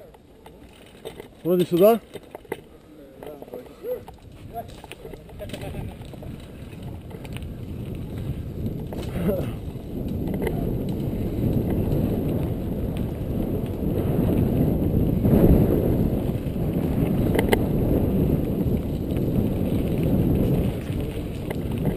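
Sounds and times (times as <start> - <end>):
bike rattling over bumps: 0.0 - 21.9
bike tyres rumbling on dirt: 0.0 - 21.9
wind on microphone: 3.8 - 21.9.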